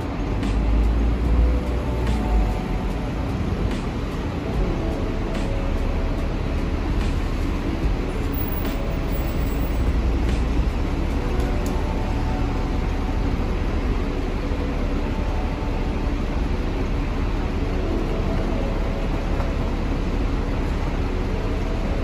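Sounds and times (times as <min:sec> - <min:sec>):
street traffic: 0:00.0 - 0:22.0
tram rumbling: 0:00.0 - 0:22.0.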